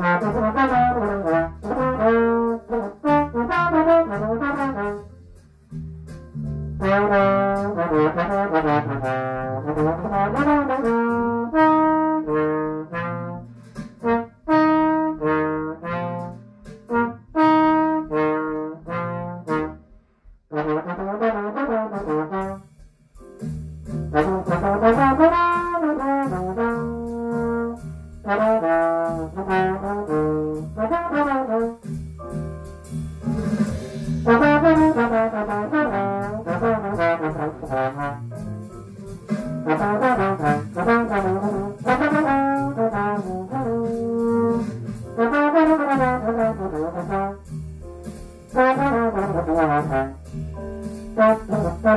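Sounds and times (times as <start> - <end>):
trombone playing jazz ballad: 0.0 - 51.9.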